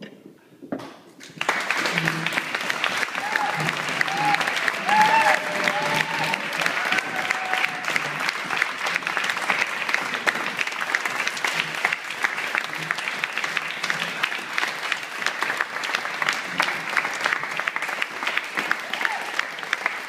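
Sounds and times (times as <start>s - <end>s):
crowd applauding: 1.2s - 20.0s.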